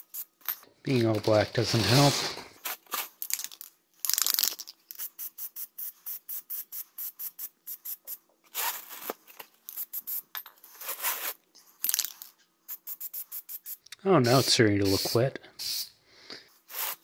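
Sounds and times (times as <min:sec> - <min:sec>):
spray can mixing ball rattling: 0:03.2 - 0:09.0, 0:09.7 - 0:15.9, 0:16.7 - 0:17.0
hissing spray bursts: 0:12.7 - 0:16.0, 0:16.7 - 0:17.0.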